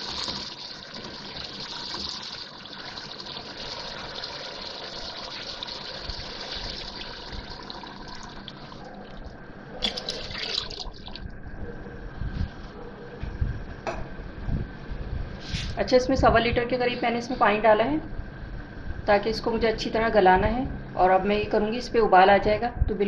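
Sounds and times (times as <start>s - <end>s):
water gushing into a pan: 0.0s - 8.8s, 9.9s - 11.3s.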